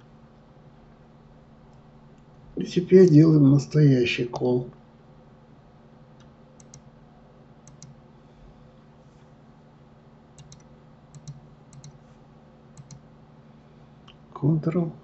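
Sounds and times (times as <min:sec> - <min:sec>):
low steady hum: 0:00.0 - 0:15.0
computer mouse and keyboard clicks: 0:06.2 - 0:06.9, 0:07.6 - 0:08.0, 0:10.4 - 0:12.0, 0:12.8 - 0:13.0.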